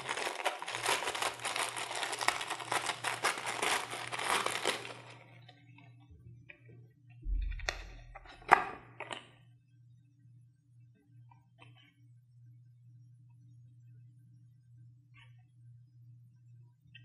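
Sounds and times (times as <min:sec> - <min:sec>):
plastic bag crinkling: 0:00.0 - 0:05.2.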